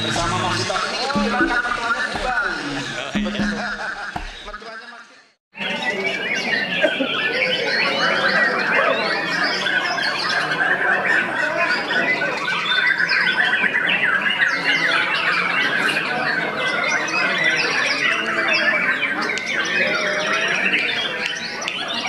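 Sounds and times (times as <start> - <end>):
birds singing: 0.0 - 22.0.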